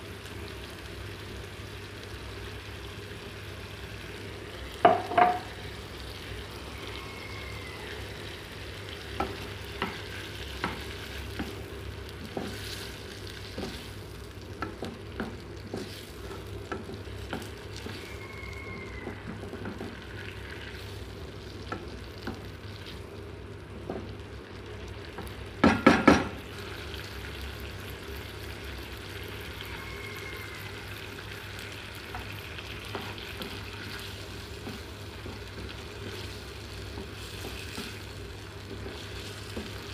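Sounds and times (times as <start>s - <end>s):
shrimp sizzling in pan: 0.0s - 39.9s
spatula tapping on pan: 4.8s - 5.5s, 9.2s - 10.0s, 10.6s - 11.6s, 25.6s - 26.4s.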